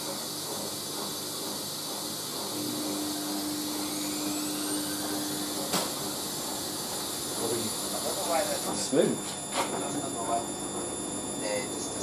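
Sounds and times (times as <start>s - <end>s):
washing machine hum: 0.0s - 12.0s
high motor whine: 2.5s - 12.0s.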